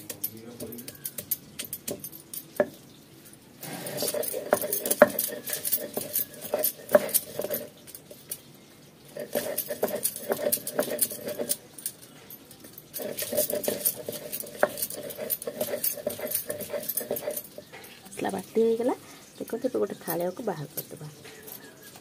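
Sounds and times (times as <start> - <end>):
stone grinding scraping: 3.6 - 8.4, 9.1 - 11.7, 13.0 - 18.3.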